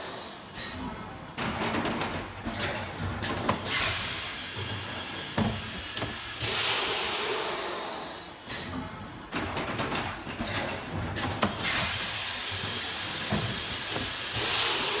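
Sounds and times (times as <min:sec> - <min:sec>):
machine clicks and clunks: 0:00.5 - 0:03.8, 0:08.5 - 0:15.0
compressed air hiss: 0:11.6 - 0:15.0.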